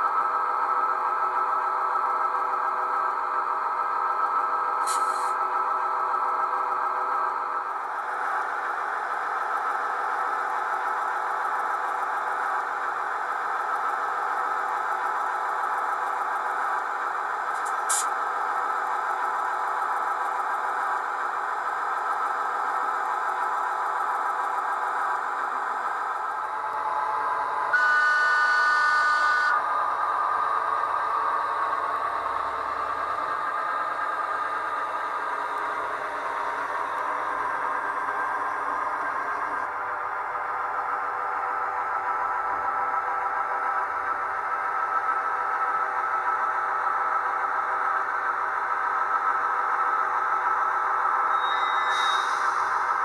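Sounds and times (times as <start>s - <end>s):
steady running hum: 0.0s - 50.9s
model train whistle: 27.7s - 29.6s, 51.3s - 52.7s.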